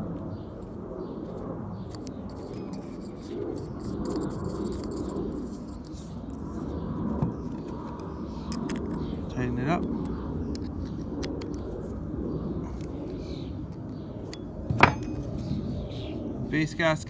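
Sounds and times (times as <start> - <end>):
low background rumble: 0.0 - 17.0
small metal parts clicking: 1.9 - 6.1.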